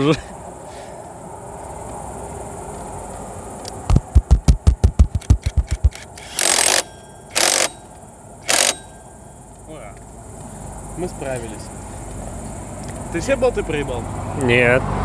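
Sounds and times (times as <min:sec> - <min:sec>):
impact wrench knocking: 0:03.9 - 0:07.8.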